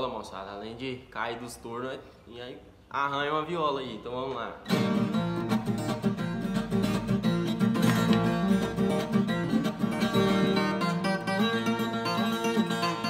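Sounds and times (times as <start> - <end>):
solo folk guitar melody: 4.6 - 13.0.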